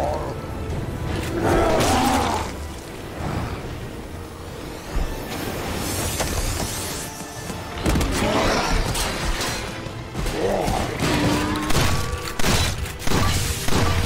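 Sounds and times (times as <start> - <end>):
film music score: 0.0 - 14.0.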